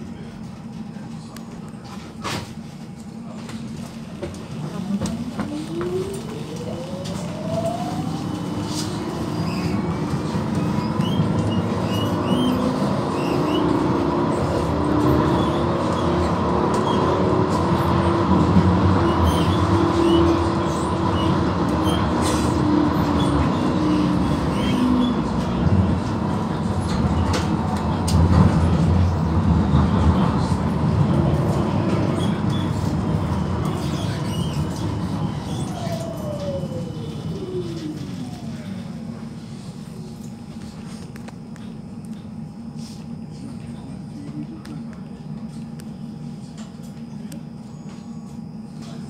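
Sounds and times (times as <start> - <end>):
tram electric drive whining: 0.0 - 49.0
wheels rumbling on rails: 0.0 - 49.0.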